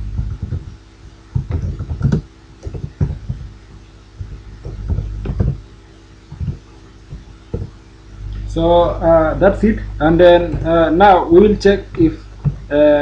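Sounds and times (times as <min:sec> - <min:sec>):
low electrical hum: 0:00.0 - 0:13.0
keyboard keystrokes: 0:01.4 - 0:03.5.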